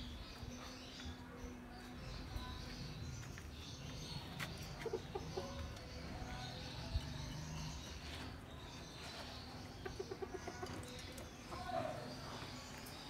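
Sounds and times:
chickens clucking: 0:03.8 - 0:13.0.

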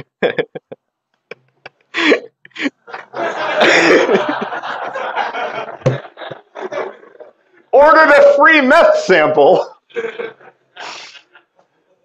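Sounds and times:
audience laughter: 0:02.8 - 0:07.4, 0:09.9 - 0:11.4.

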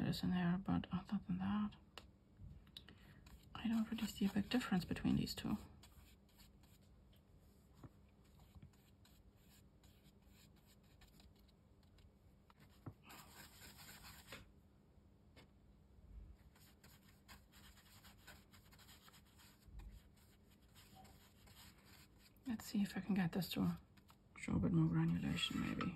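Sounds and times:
paintbrush brushing on paper: 0:03.1 - 0:14.5, 0:16.3 - 0:24.2, 0:24.8 - 0:25.9.

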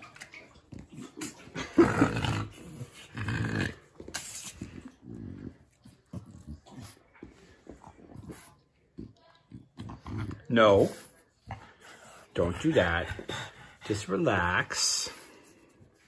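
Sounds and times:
dog growling and grunting: 0:00.8 - 0:07.0, 0:09.6 - 0:10.9.

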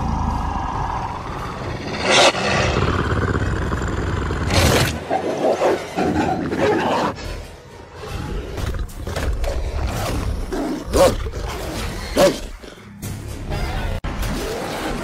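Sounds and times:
low rumble: 0:00.0 - 0:04.6.

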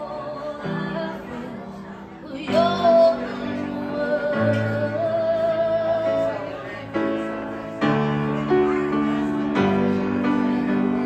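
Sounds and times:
woman singing: 0:00.0 - 0:06.8
grand piano chords: 0:00.0 - 0:11.0.

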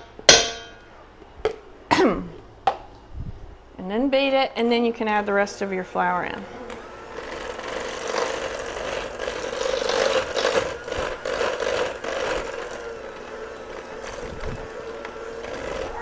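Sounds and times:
electric hand mixer running: 0:06.6 - 0:16.0
beaters scraping metal bowl: 0:06.7 - 0:16.0.

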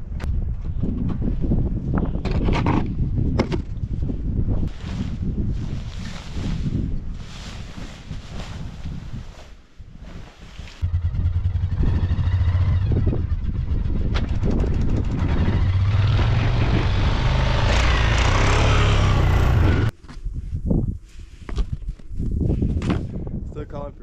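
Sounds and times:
engine running loudly: 0:10.8 - 0:19.9.

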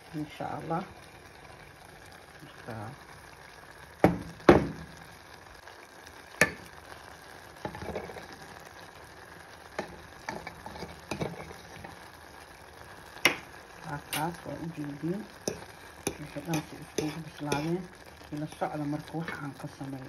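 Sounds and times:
food sizzling: 0:00.0 - 0:20.0
fork scraping pan: 0:10.3 - 0:11.8, 0:15.5 - 0:17.7.

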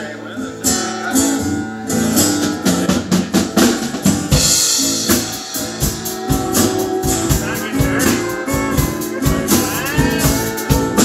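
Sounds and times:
live band playing: 0:00.0 - 0:11.0
drum kit: 0:01.0 - 0:11.0
cymbal crash: 0:02.3 - 0:11.0.

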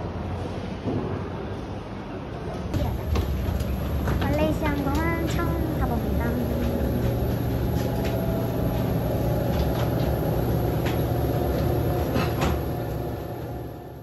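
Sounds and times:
low machine hum: 0:00.0 - 0:14.0
people walking: 0:02.8 - 0:13.0
suitcases rolling over carpet: 0:02.8 - 0:13.7.

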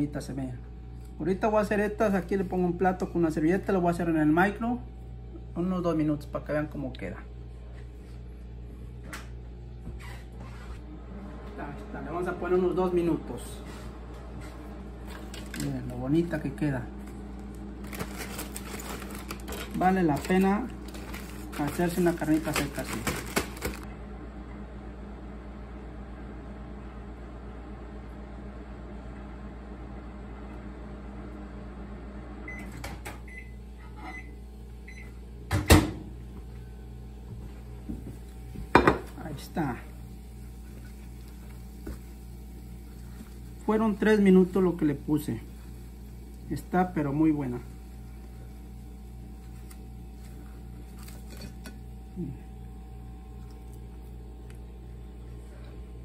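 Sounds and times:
microwave oven humming: 0:00.0 - 0:56.0
plastic bag clicks and crinkles: 0:15.1 - 0:15.9, 0:17.8 - 0:23.8.

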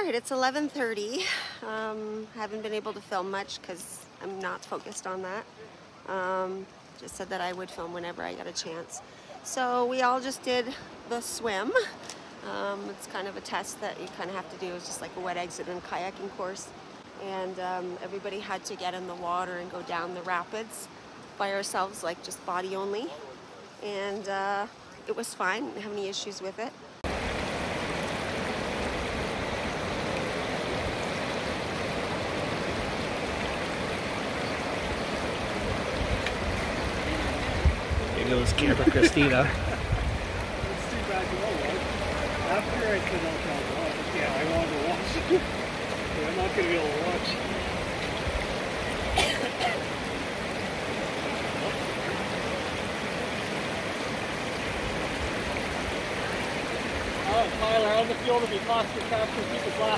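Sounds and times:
river rapids rushing over rocks: 0:27.1 - 0:59.9.

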